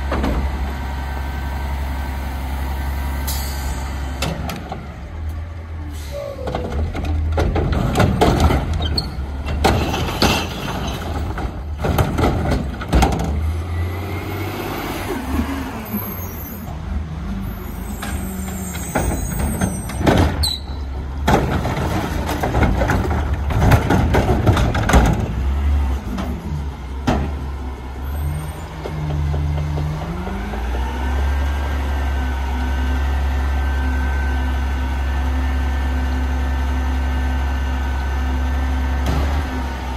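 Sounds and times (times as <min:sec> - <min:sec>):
cart banging and clattering: 0:06.4 - 0:13.5, 0:18.0 - 0:27.5
recyclables crashing into hopper: 0:09.5 - 0:13.4.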